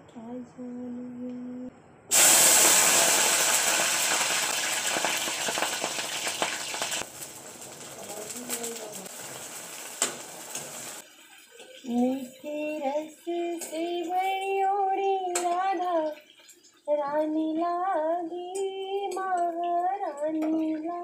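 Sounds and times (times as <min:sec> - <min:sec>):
food sizzling in hot oil: 0:02.1 - 0:15.4.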